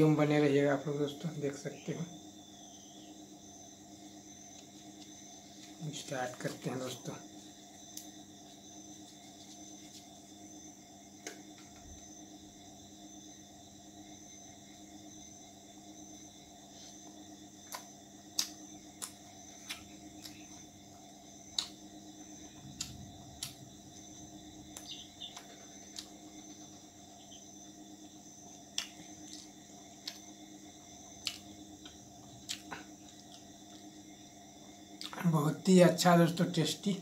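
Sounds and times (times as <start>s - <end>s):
mouth smacks and clicks: 21.5s - 21.8s, 28.7s - 30.2s
man chewing: 28.6s - 30.3s, 31.0s - 33.9s.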